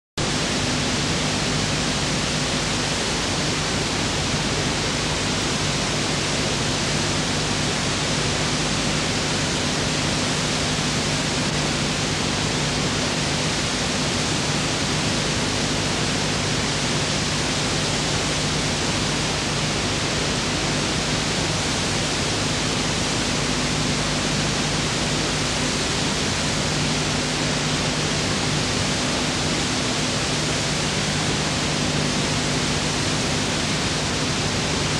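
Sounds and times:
low electrical hum: 0.2 - 34.9.

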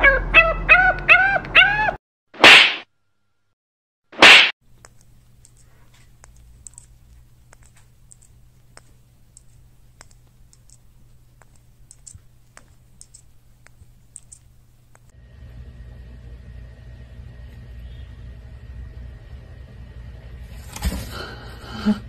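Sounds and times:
steady low hum: 4.6 - 22.0
faint small clicks: 4.8 - 15.1.

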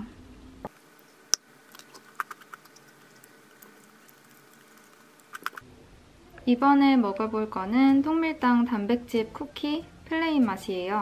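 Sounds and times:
cookie breaking ticks: 0.9 - 5.6.

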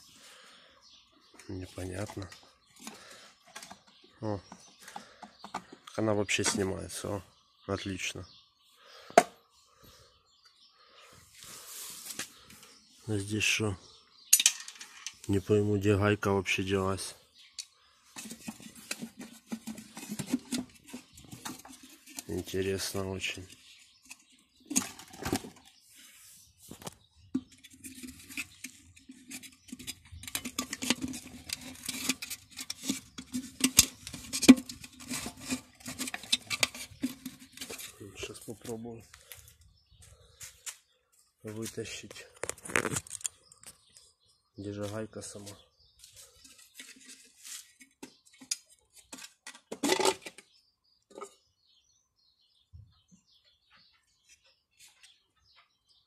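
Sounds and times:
pump parts clicking and clattering: 1.4 - 7.0, 14.3 - 15.5, 17.0 - 25.8, 26.7 - 39.6, 41.5 - 44.0, 46.0 - 51.4
fingers scraping metal parts: 26.8 - 38.0
small metal clicks: 42.4 - 43.8.

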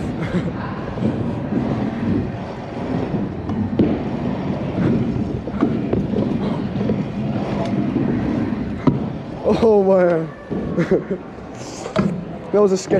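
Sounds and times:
scooter wheels rumbling: 0.0 - 12.9.

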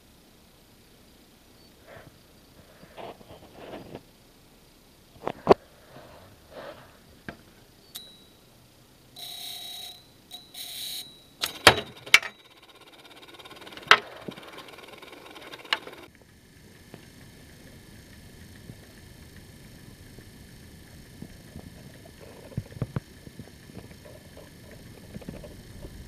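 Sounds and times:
sharp clicks and knocks: 11.4 - 16.1, 21.2 - 26.0.

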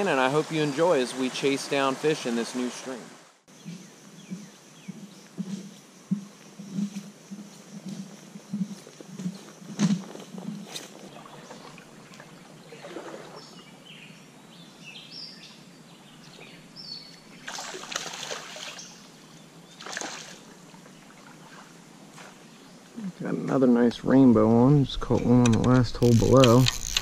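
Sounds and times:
stream water rushing: 0.0 - 3.5, 17.4 - 19.0
birds chirping: 0.0 - 27.0.

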